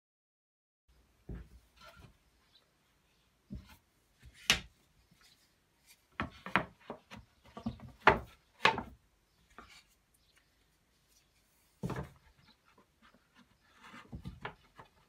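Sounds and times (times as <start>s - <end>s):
plywood panels knocking: 6.2s - 9.0s, 11.8s - 12.6s, 13.4s - 15.0s
wood scraping: 11.2s - 15.0s.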